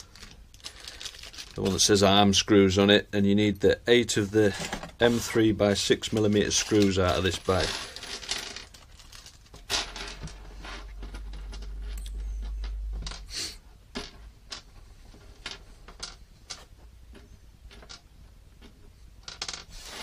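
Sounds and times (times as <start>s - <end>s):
screws rattling on a desk: 5.8s - 13.3s, 14.0s - 20.0s
low rumble: 11.0s - 13.2s.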